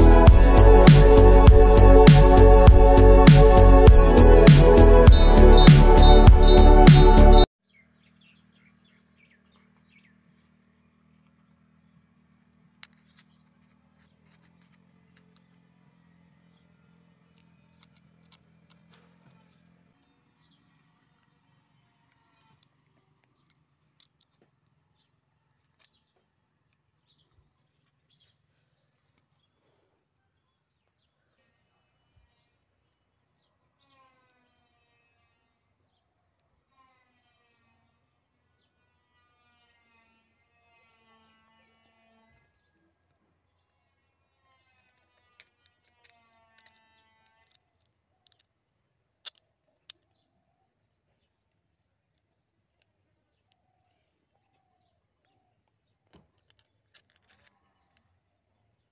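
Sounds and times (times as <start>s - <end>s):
faint high chirps: 0.0s - 7.5s.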